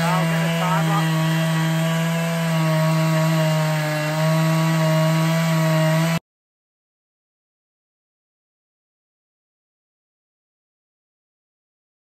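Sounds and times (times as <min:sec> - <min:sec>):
chainsaw ripping a log: 0:00.0 - 0:06.2.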